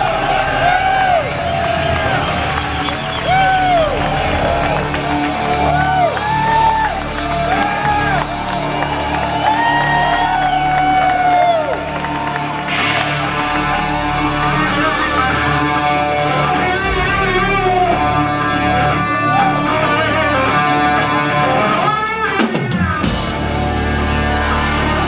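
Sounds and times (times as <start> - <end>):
live rock band through pa: 0.0 - 25.0
loud crash: 12.6 - 15.2.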